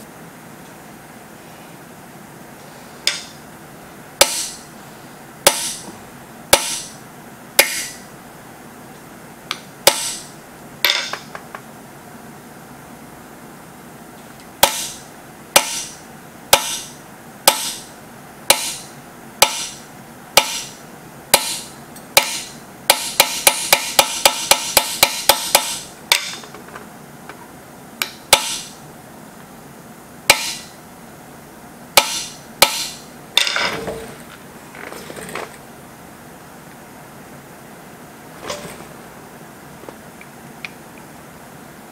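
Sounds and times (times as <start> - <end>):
hammer striking steel punch: 4.2 - 4.6, 5.5 - 5.9, 6.5 - 7.0, 7.6 - 8.0, 9.5 - 11.3, 14.6 - 15.0, 15.6 - 17.9, 18.5 - 19.8, 20.4 - 20.8, 21.4 - 26.4, 28.0 - 28.8, 30.3 - 30.8, 32.0 - 33.8
shuffling noise: 38.3 - 40.1.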